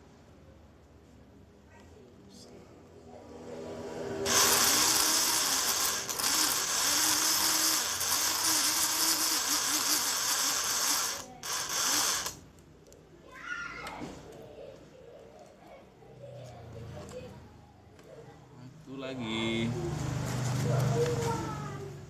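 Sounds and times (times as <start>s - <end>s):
small electric motor running: 4.2s - 12.4s.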